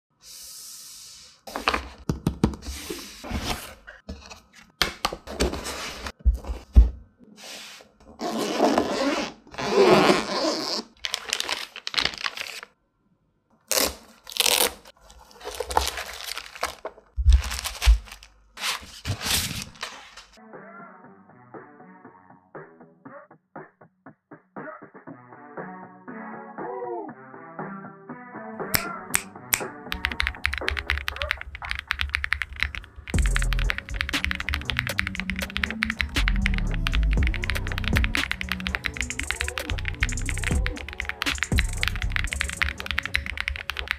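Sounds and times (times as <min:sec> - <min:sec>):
case unzipping: 0:08.2 - 0:11.6
packaging rustling and tearing: 0:10.0 - 0:12.8, 0:13.7 - 0:20.4
cardboard box opened: 0:13.7 - 0:20.2.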